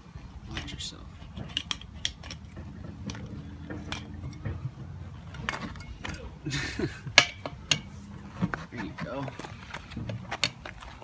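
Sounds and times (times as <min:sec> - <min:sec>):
metal tools clinking on wheel rim: 0:00.3 - 0:08.1.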